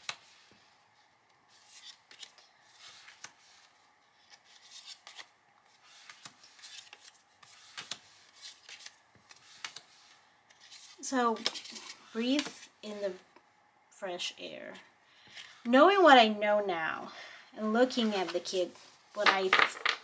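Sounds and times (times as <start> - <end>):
paper cards rustling: 1.4 - 12.6.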